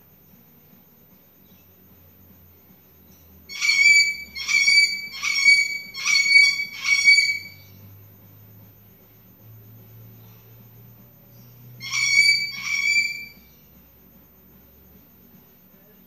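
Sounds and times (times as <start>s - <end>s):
cockatoo screaming: 3.5s - 7.6s, 11.8s - 13.4s.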